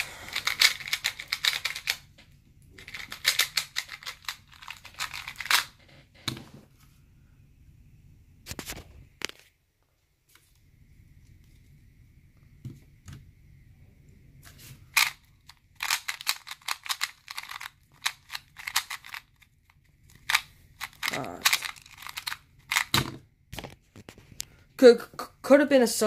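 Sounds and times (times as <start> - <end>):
puzzle cube clicking: 0.3 - 2.1, 2.8 - 5.7, 15.0 - 19.5, 20.1 - 23.0.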